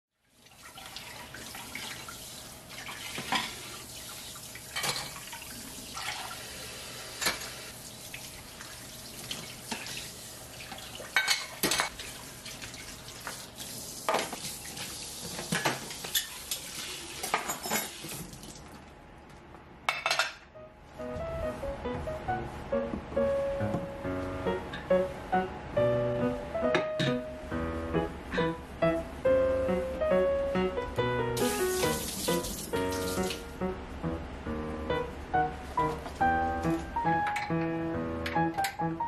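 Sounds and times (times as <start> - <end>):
dishes clinking: 3.2 - 3.6, 4.7 - 5.2, 11.2 - 11.9, 15.5 - 18.0, 19.9 - 20.5, 26.7 - 27.3.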